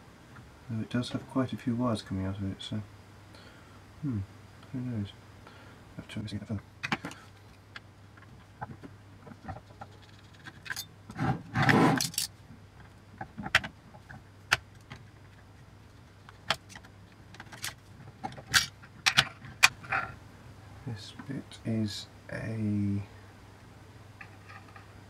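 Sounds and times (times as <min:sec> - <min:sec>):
small metal parts clinking: 0:09.4 - 0:10.9, 0:11.9 - 0:12.4.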